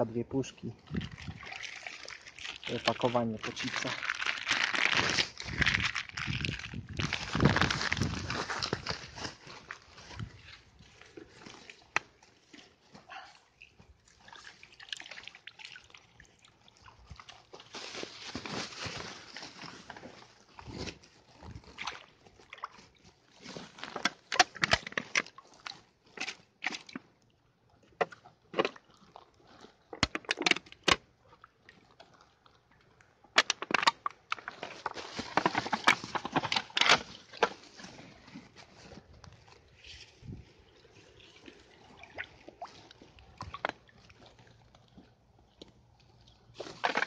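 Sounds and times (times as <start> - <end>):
shallow water sloshing and splashing: 0.7 - 33.3, 34.2 - 47.0
plastic bag crinkling: 1.4 - 11.7.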